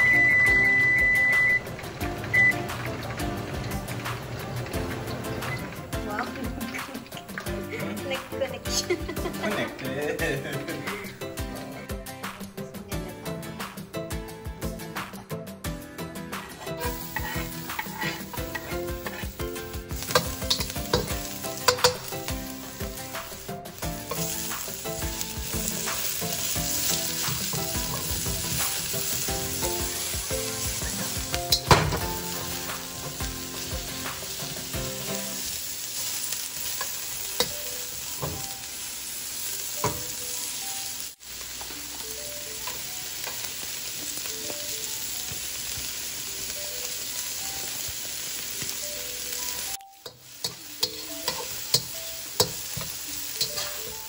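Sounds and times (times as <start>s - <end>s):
garlic and onion sizzling in oil: 0.0s - 10.6s, 16.7s - 54.0s
metal spatula scraping a pan: 16.8s - 22.1s, 50.0s - 54.0s.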